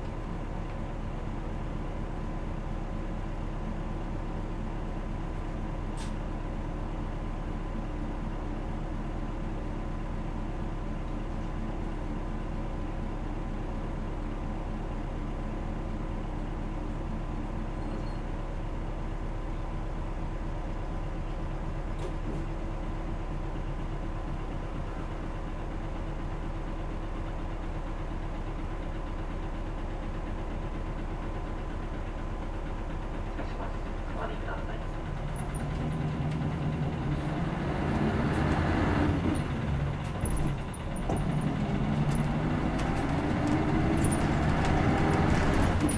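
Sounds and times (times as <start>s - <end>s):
bus diesel engine running: 0.0s - 45.9s.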